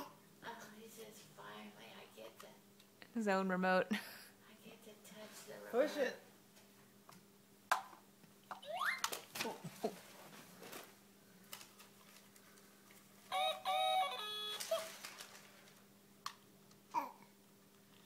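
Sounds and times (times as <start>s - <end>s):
toy speaker rooster crow: 13.3s - 14.9s
toddler vocalizing: 16.9s - 17.3s.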